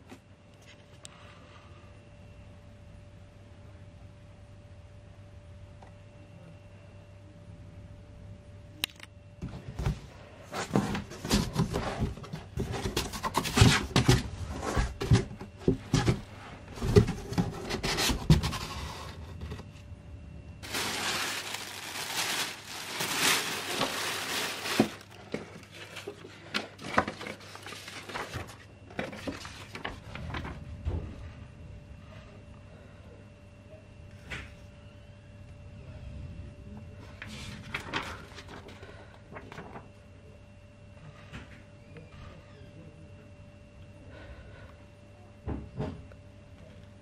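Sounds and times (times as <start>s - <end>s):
faint steady hum: 0.0s - 47.0s
paper and cardboard handling: 9.8s - 19.7s, 20.6s - 30.5s
cardboard box knocking and scraping: 10.5s - 19.7s
plastic bag crinkling: 20.6s - 28.7s.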